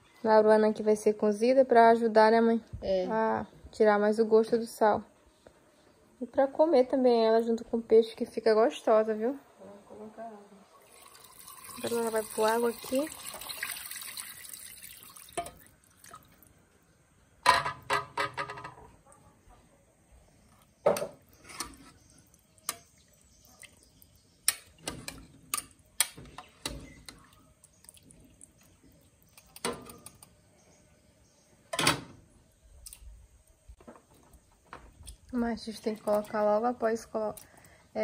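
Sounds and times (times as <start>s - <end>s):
metal pots clinking and knocking: 15.3s - 15.6s, 17.4s - 18.8s.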